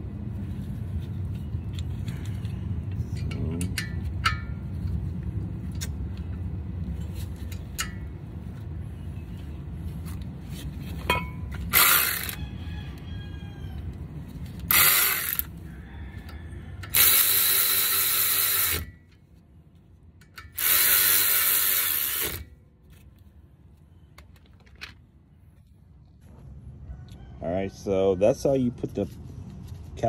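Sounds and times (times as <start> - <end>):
cordless power ratchet running: 11.7 - 12.4, 14.6 - 15.5, 16.8 - 19.0, 20.4 - 22.5.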